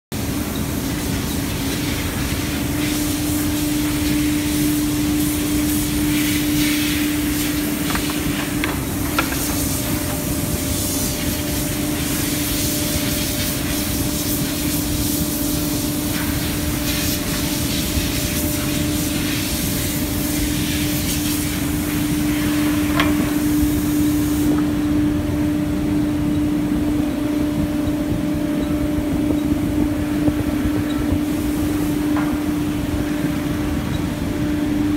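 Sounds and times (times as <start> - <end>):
sanding rollers hissing on wood: 0.8 - 24.6.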